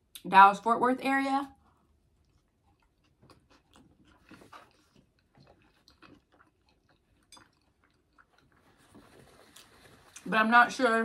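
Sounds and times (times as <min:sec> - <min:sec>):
person chewing food: 0:01.6 - 0:10.2.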